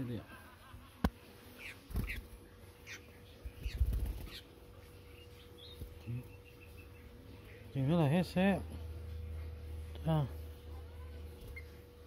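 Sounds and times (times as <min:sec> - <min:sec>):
bird chirps: 0:01.5 - 0:07.9.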